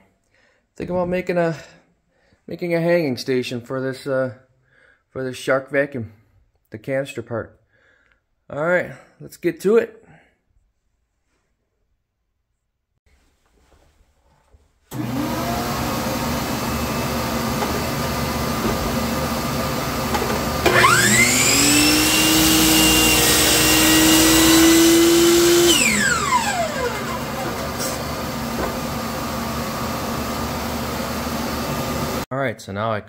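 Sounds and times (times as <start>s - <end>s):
dust extraction vacuum running: 14.9s - 32.2s
miter saw whining: 14.9s - 32.2s
saw cutting wooden board: 14.9s - 32.2s.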